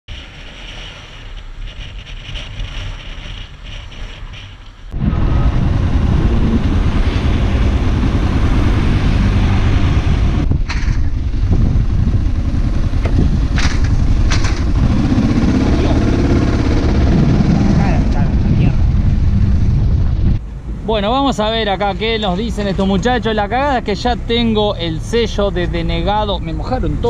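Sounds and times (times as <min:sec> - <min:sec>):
wind buffeting microphone: 0:00.1 - 0:21.0
motorcycle riding: 0:00.1 - 0:27.0.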